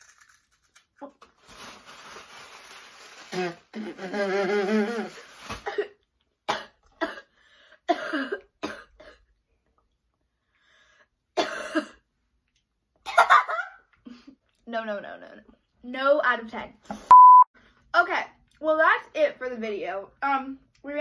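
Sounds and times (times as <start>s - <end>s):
girl coughing: 5.6s - 7.3s, 7.9s - 9.3s, 11.4s - 12.0s.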